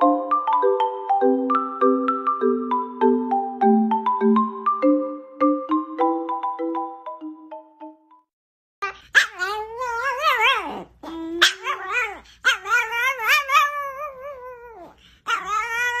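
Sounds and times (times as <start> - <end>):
dog howling: 9.3 - 16.0.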